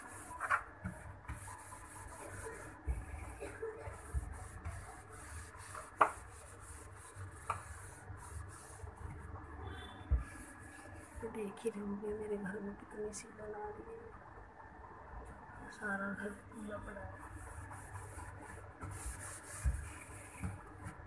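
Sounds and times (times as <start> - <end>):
cloth wiping plastic walls: 0.0 - 9.4, 10.1 - 11.4, 17.2 - 21.0.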